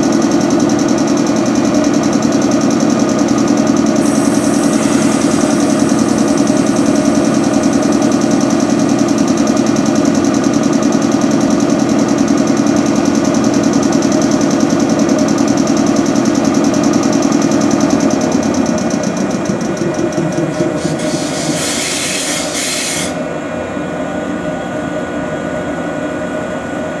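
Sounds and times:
electric air compressor running: 0.0 - 23.4
short hiss of air: 4.0 - 5.5, 20.8 - 23.2.

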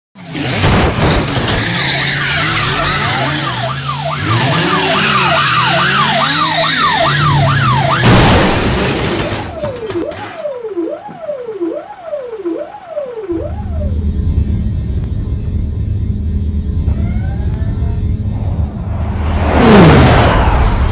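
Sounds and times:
tyres screeching: 0.2 - 10.0
loud crash: 0.4 - 1.8, 7.9 - 10.3, 18.8 - 20.9
police siren wailing: 1.3 - 14.6.

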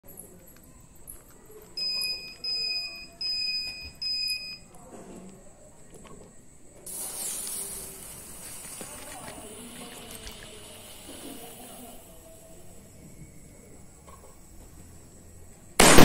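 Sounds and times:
fireworks fountains hissing: 6.8 - 16.0.

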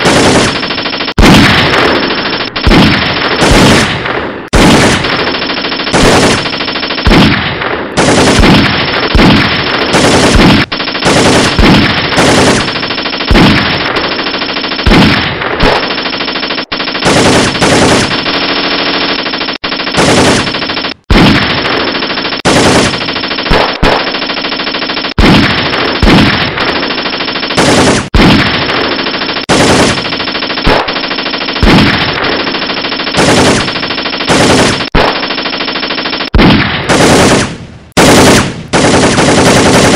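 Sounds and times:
machine-gun fire: 0.0 - 39.9
sharp loud gunshot: 1.2 - 2.0.

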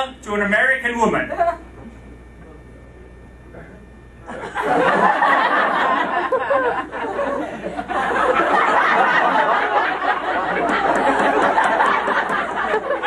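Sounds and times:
audience laughing: 4.2 - 13.0.

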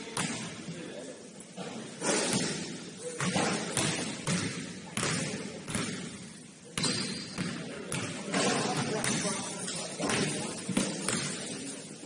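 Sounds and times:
basketball bouncing on wooden floor: 3.2 - 6.1.

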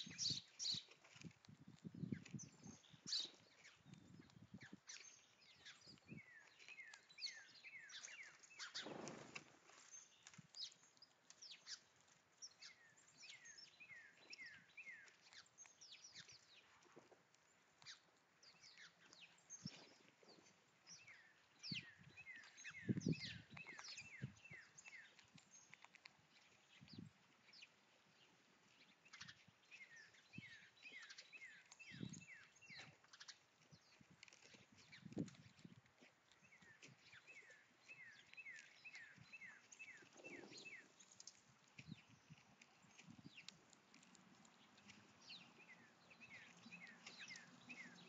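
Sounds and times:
songbirds calling: 0.0 - 48.0
squirrel thumps and rustles: 8.6 - 10.7.

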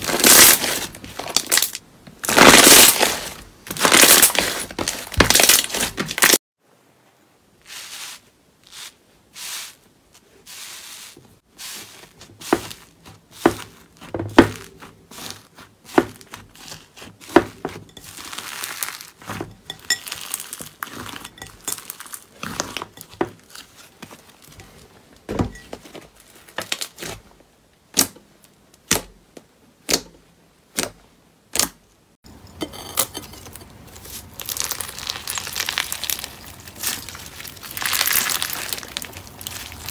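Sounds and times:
foam-bead slime crunching: 0.0 - 6.4, 7.6 - 24.8, 33.5 - 39.9
slime squeezing crackles: 18.0 - 19.3, 20.0 - 23.6, 34.0 - 39.9.

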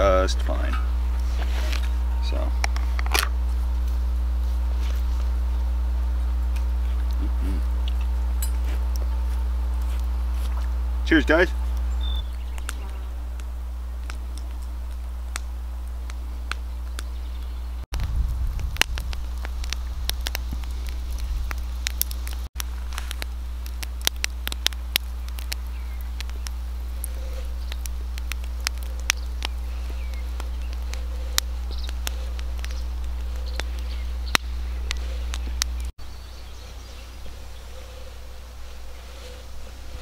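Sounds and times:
campfire crackling and popping: 0.0 - 40.0
low steady rumble: 0.0 - 40.0
outdoor ambience: 0.0 - 40.0.

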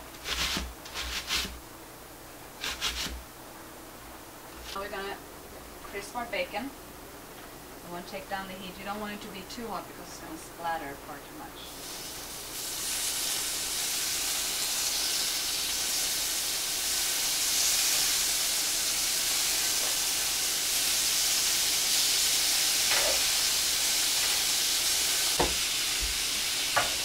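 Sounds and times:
bacon sizzling in a skillet: 11.8 - 27.0.

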